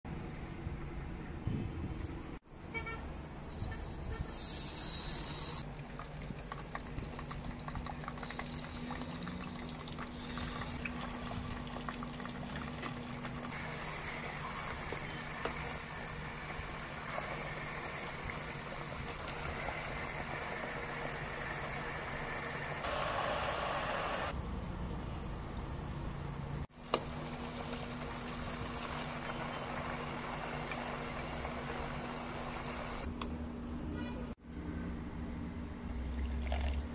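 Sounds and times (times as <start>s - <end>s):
chicken deep-frying in oil: 5.5s - 24.3s, 26.7s - 33.1s
potato chunks sizzling in oil: 26.7s - 33.1s.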